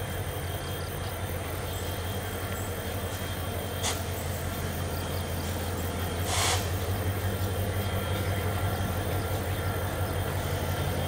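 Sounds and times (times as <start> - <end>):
locomotive engine drone: 0.0 - 11.0
short hiss: 3.8 - 4.3, 6.2 - 6.8.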